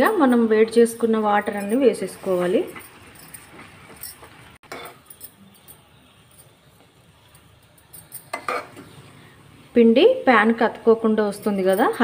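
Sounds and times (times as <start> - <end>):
spatula scraping metal pan: 4.6 - 5.0, 8.3 - 8.9.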